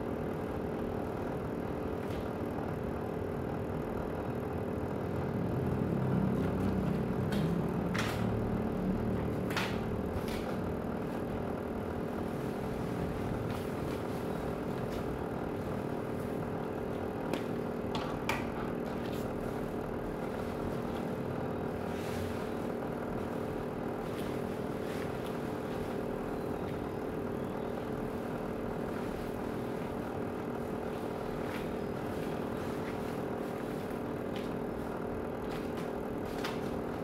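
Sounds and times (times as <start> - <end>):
clothes steamer humming: 0.0 - 37.0.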